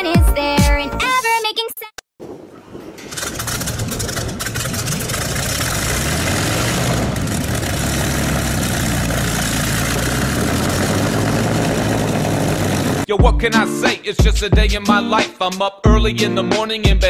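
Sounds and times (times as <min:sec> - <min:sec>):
piston aircraft engine starting: 0:02.8 - 0:13.1.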